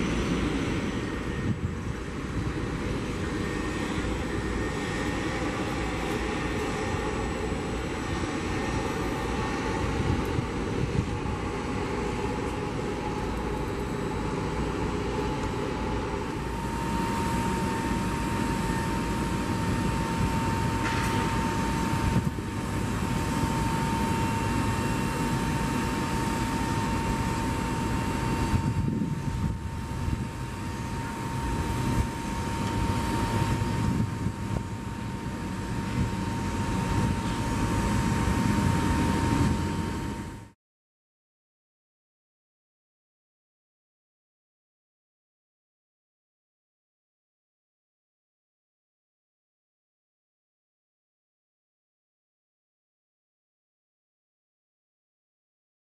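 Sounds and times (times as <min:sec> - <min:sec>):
aircraft engine low rumble: 0:00.0 - 0:40.6
high engine whine: 0:00.0 - 0:40.6.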